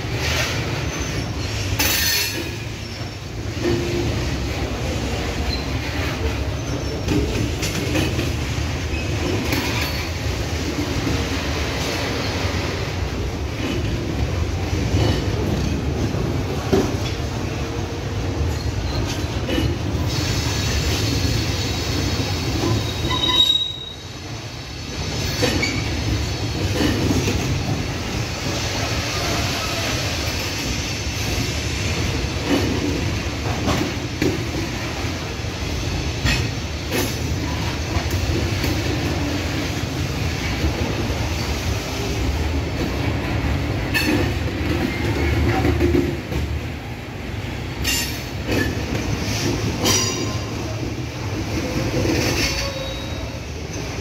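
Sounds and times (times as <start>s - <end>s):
wheels clicking on rail joints: 0.0s - 24.3s, 24.9s - 54.0s
train wheels rumbling on rails: 0.0s - 54.0s
wheel squeal: 22.7s - 24.1s, 52.2s - 53.4s.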